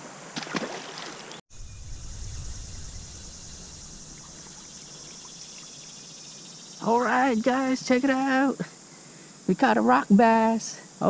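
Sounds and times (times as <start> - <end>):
fish splashing into water: 0.4 - 1.4
low rumble: 1.5 - 6.0
creek water flowing: 2.1 - 6.6.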